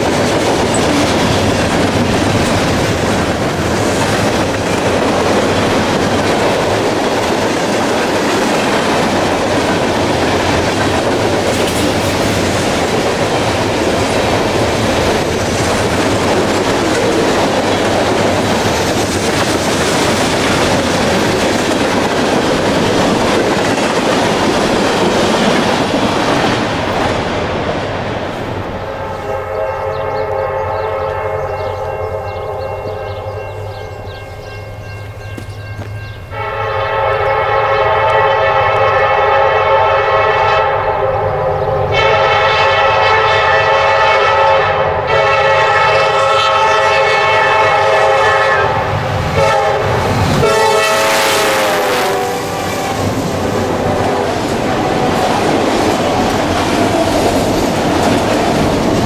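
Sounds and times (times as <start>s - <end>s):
train rumble and wheel clatter: 0.0s - 59.0s
locomotive air horn blasts: 28.9s - 33.4s, 36.3s - 55.3s.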